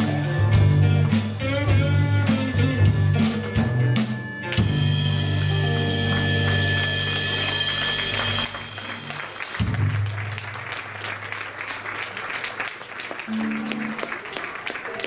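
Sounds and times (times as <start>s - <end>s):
blues band final chord: 0.0s - 10.1s
audience applauding: 4.5s - 15.0s.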